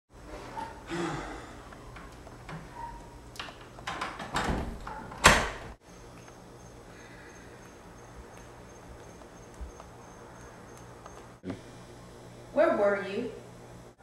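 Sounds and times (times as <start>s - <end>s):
door latch clicking and rattling: 3.4s - 5.7s
door banging: 3.5s - 5.8s.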